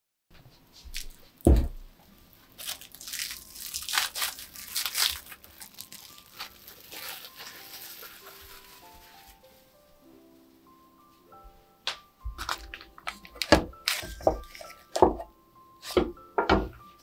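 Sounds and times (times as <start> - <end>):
cling film crinkling: 2.3 - 10.0, 12.3 - 15.1.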